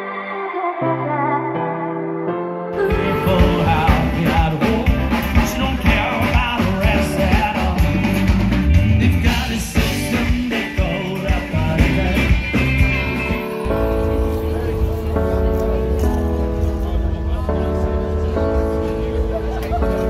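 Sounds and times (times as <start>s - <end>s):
person singing: 0.0s - 14.0s
drum kit: 2.8s - 19.0s
electric and acoustic guitars: 2.8s - 20.0s.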